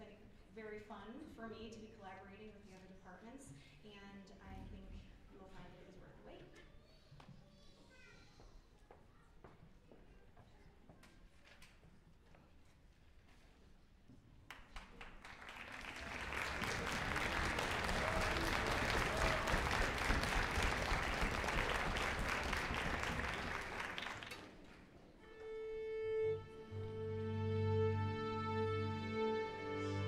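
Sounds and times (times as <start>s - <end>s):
audience applauding: 14.6s - 24.6s
string orchestra held chords: 25.2s - 30.0s.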